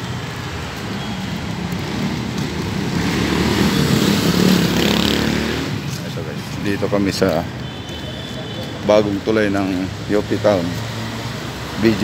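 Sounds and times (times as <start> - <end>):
vehicle passing close: 0.0 - 7.2
road traffic: 0.0 - 12.0.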